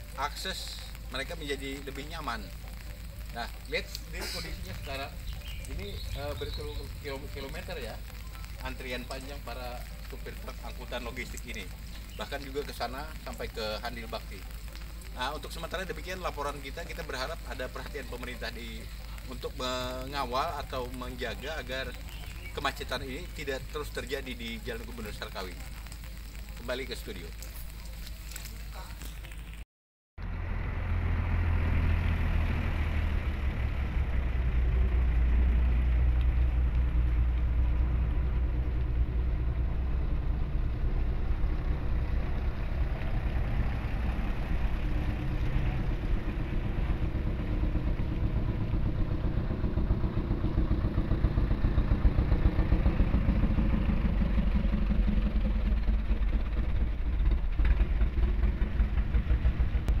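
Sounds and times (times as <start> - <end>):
truck diesel engines rumbling: 0.0 - 24.6, 30.2 - 60.0.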